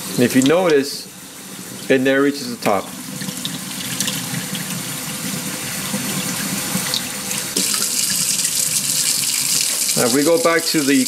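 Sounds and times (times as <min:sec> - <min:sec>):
faucet running through mesh filter: 0:01.6 - 0:11.0
water splashing into metal sink: 0:02.7 - 0:05.2, 0:06.0 - 0:11.0.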